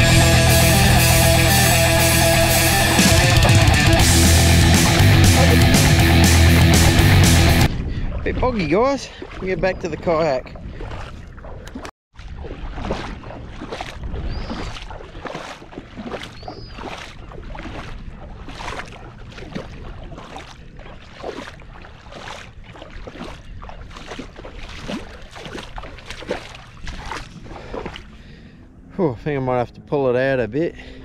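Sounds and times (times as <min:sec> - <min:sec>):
footsteps splashing in shallow water: 0:01.5 - 0:28.6
wind rumbling on microphone: 0:07.6 - 0:28.8.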